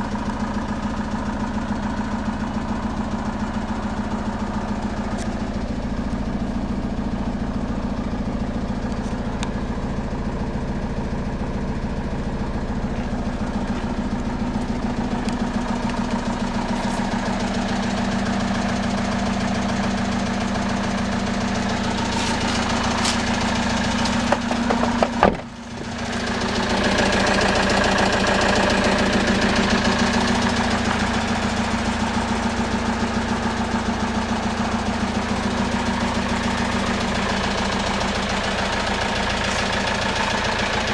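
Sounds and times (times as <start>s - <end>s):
diesel engine idling: 0.0s - 40.9s
sharp clunks: 24.2s - 25.5s.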